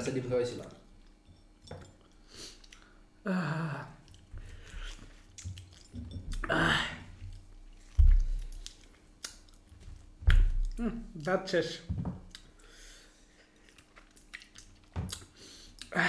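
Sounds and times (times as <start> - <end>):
man groaning: 6.4 - 7.1, 10.8 - 11.1
man biting and chewing: 13.5 - 16.0.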